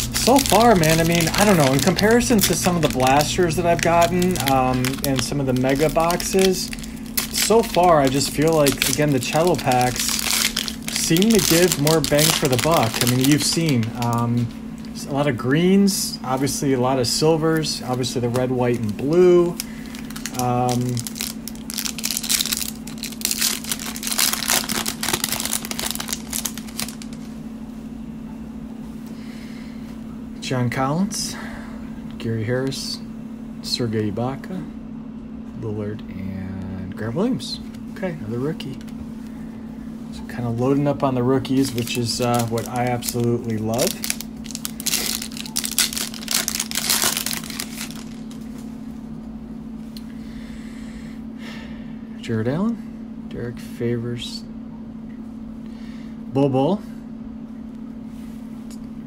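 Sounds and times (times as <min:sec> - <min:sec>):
cellophane wrapper crinkling: 0:00.0 - 0:15.2, 0:16.3 - 0:27.3, 0:40.9 - 0:48.7
steady low hum: 0:00.0 - 0:59.0.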